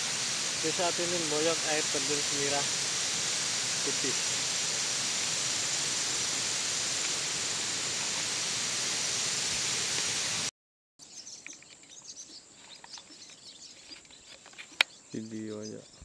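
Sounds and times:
birds chirping: 0.0s - 7.7s, 11.0s - 16.0s
steady rushing hiss: 0.0s - 10.5s
insects chirping: 0.0s - 16.0s.

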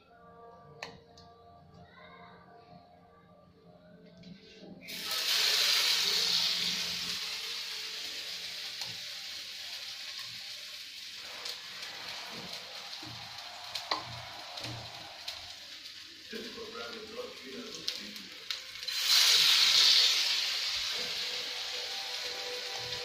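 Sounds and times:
food sizzling in hot oil: 4.8s - 23.0s.

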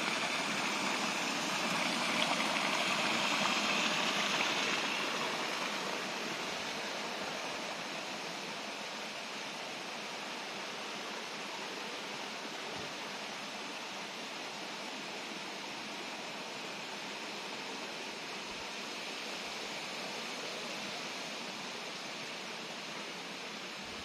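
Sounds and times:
stream water rushing: 0.0s - 8.9s.

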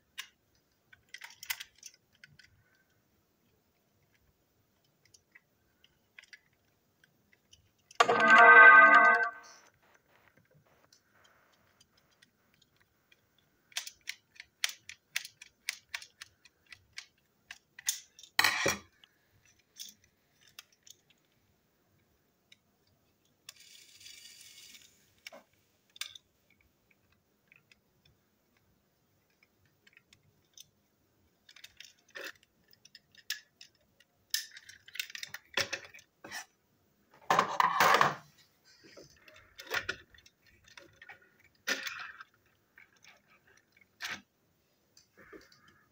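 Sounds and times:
plastic parts clattering on table: 37.2s - 44.2s.

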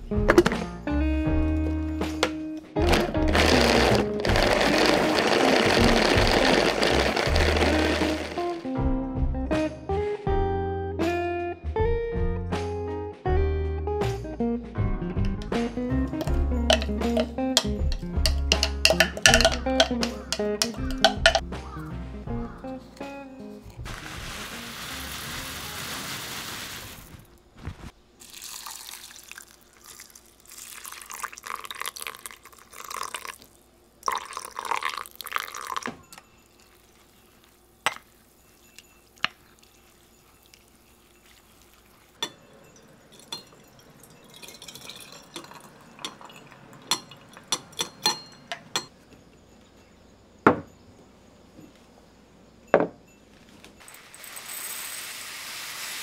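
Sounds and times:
water pouring: 2.8s - 8.6s, 16.1s - 21.4s, 23.7s - 27.3s, 28.2s - 47.9s, 53.8s - 56.0s
spatula ticking against glass: 16.2s - 21.4s
dry rice poured into glass bowl: 16.7s - 17.3s, 28.2s - 33.4s, 53.8s - 56.0s.

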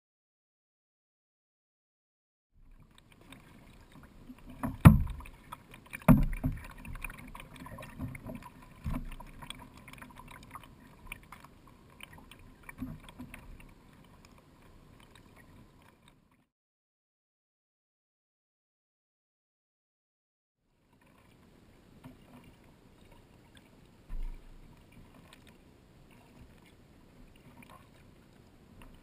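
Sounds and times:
kayak paddle strokes: 2.6s - 16.4s, 20.8s - 29.0s
water splashing against kayak: 2.6s - 16.5s, 20.8s - 29.0s.

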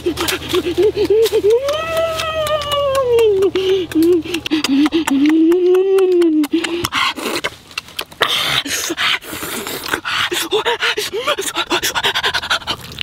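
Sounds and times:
breathy panting: 3.4s - 5.3s, 6.5s - 7.5s, 8.2s - 12.9s
smacking and slurping while eating: 6.5s - 10.3s, 11.5s - 13.0s.

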